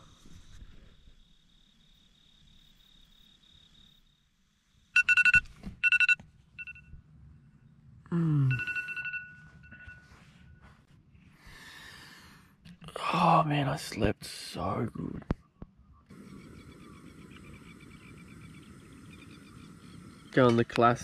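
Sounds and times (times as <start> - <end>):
crickets chirping: 0.0 - 10.0, 16.1 - 21.0
phone alarm beeping: 5.0 - 7.0, 8.4 - 10.8.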